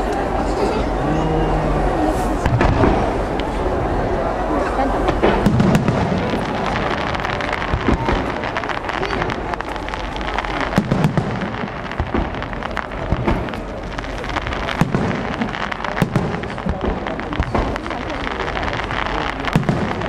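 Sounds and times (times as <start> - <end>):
firework shells bursting: 5.1 - 20.0.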